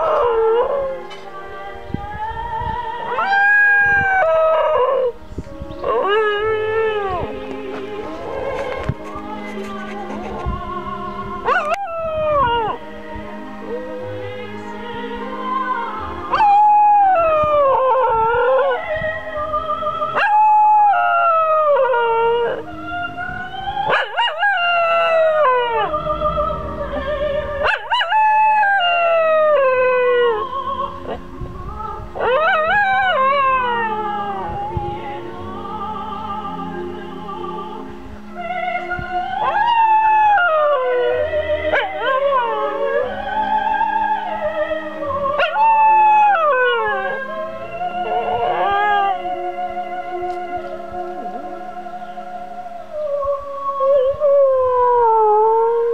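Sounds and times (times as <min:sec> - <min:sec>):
dog howling: 0:00.0 - 0:01.0, 0:03.1 - 0:05.2, 0:11.4 - 0:12.8, 0:16.3 - 0:18.9, 0:23.8 - 0:31.2, 0:32.2 - 0:34.8, 0:39.4 - 0:51.8
music playing: 0:00.0 - 0:55.9.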